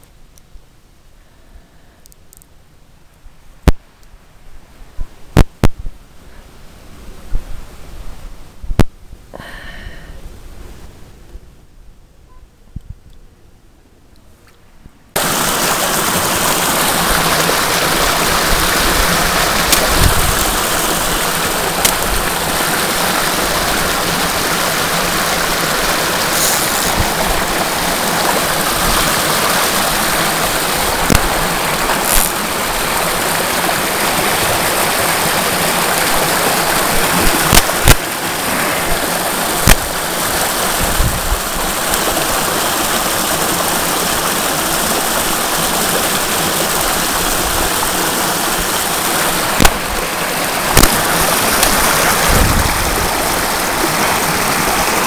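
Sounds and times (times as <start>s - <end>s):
stream water rushing: 15.2s - 55.0s.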